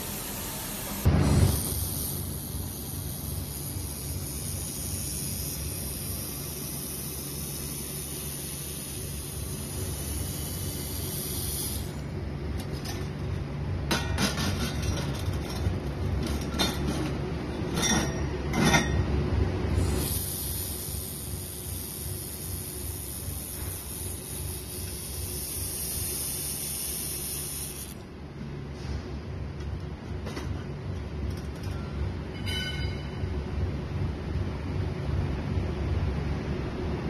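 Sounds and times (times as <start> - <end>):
laser welder humming and hissing: 0.0 - 17.5, 18.2 - 28.2
welding crackles and clicks: 1.0 - 17.2, 19.8 - 28.0.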